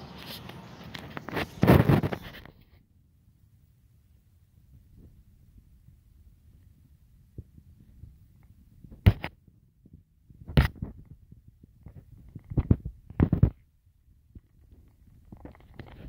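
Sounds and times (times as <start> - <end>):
sharp scrapes and thumps: 0.0 - 2.8, 8.9 - 9.4, 10.4 - 11.2, 11.8 - 13.6.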